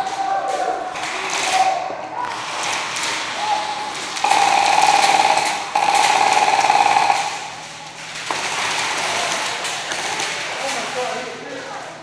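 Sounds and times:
airsoft gun full auto fire: 4.2s - 7.6s.

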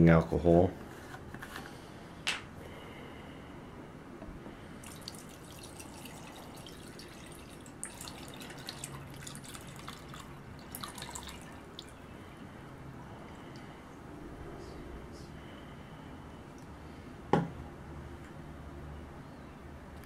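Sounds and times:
liquid pouring into glass dish: 4.8s - 12.0s
liquid splashing and trickling: 4.8s - 12.1s.

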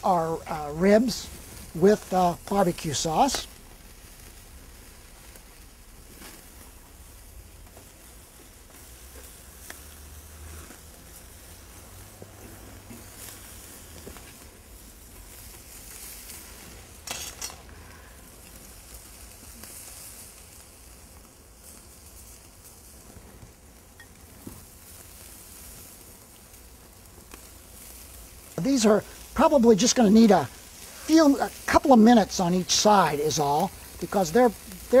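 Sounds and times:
loud hiss: 0.0s - 7.5s, 27.5s - 35.0s
ribs sizzling on a grill: 0.0s - 35.0s.

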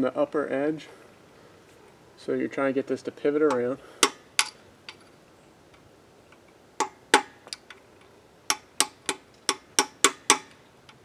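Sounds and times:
hammer tapping metal punch: 8.5s - 10.6s.

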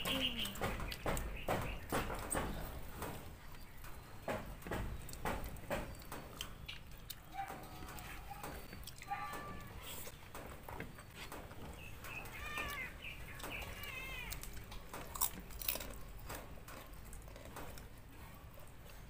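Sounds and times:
chewing: 5.0s - 10.2s, 12.7s - 19.0s.

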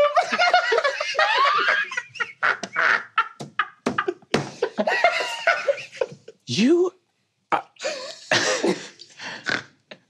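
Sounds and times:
group of people laughing: 0.0s - 6.4s.

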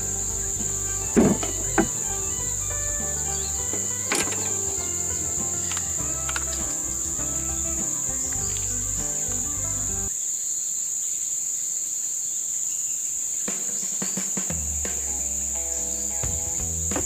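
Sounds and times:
background music: 0.0s - 10.1s, 14.6s - 17.0s
insects trilling: 0.0s - 17.0s.

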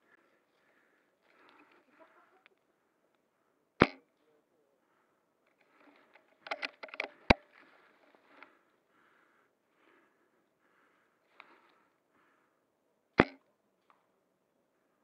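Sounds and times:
rifle bolt clicking: 6.5s - 7.1s
airsoft rifle shot: 13.2s - 13.4s.

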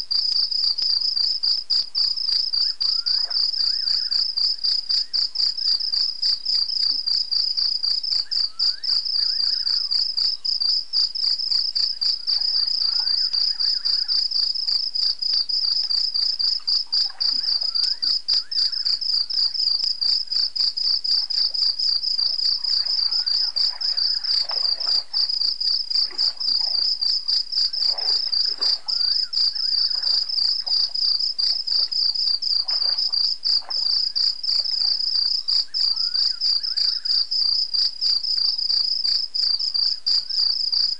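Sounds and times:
crickets trilling: 0.0s - 40.9s
faint chirping calls: 11.8s - 14.8s, 15.4s - 31.9s, 33.7s - 37.2s.

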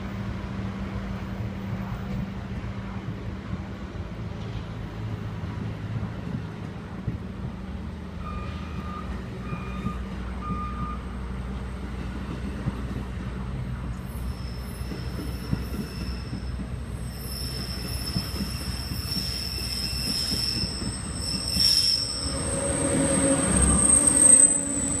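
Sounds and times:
train wheels rumbling on rails: 0.0s - 25.0s
high-pitched wheel squeal: 14.2s - 25.0s.

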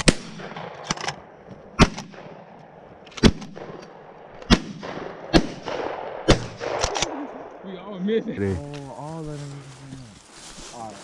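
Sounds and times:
shotgun shots: 0.0s - 2.5s, 3.2s - 7.4s
faint distant gunshots: 3.2s - 7.7s.

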